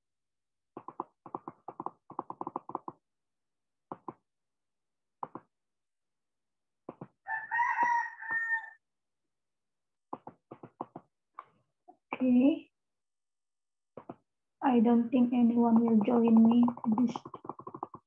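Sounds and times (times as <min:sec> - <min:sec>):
computer mouse clicking: 0:00.8 - 0:03.0, 0:15.7 - 0:18.0
rooster crowing: 0:07.2 - 0:08.8.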